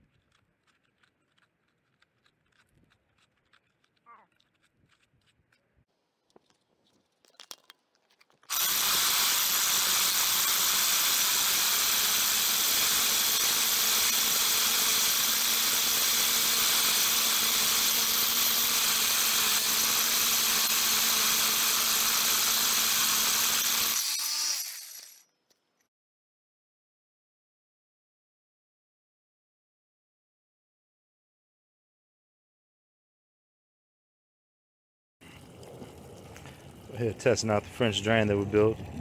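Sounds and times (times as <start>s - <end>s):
core drill grinding concrete: 8.5s - 25.3s.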